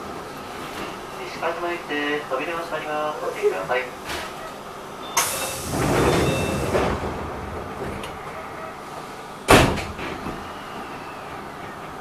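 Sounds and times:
air hissing from train doors: 3.4 - 11.9
sliding doors rumbling: 3.4 - 12.0.

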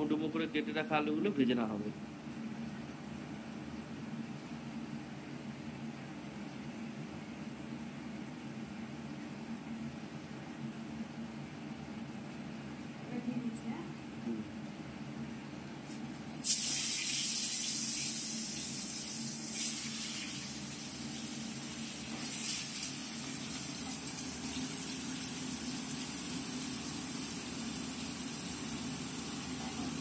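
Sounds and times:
potatoes sizzling in hot oil: 16.4 - 30.0.

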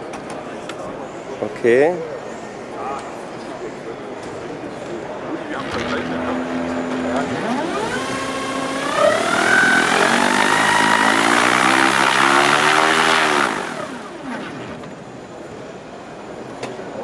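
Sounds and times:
electric motor and propeller whining: 5.6 - 15.1.

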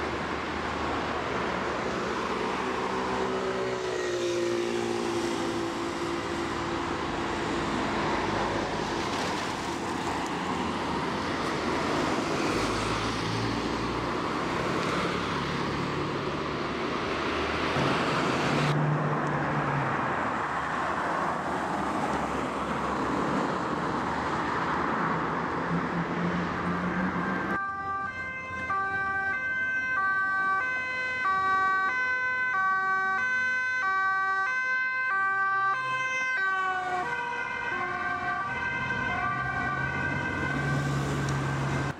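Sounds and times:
street traffic: 0.0 - 41.9
two-tone police siren: 27.0 - 41.9.

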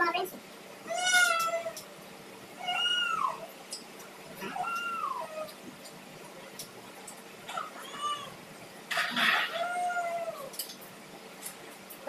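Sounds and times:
cat meowing: 0.9 - 1.8, 2.6 - 3.5, 4.4 - 5.6, 7.5 - 8.4, 9.0 - 10.6.

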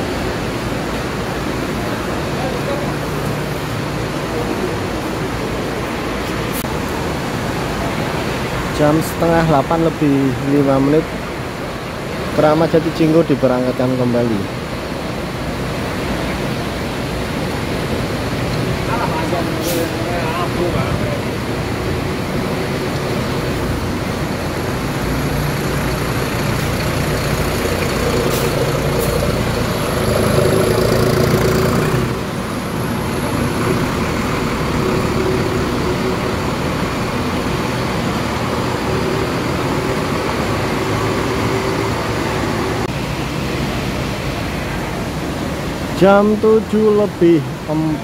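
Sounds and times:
bus diesel engine running: 14.3 - 46.0.

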